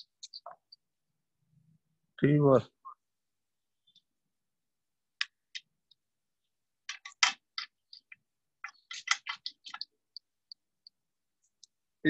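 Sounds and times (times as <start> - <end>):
metal parts clicking and clinking: 6.9 - 9.9.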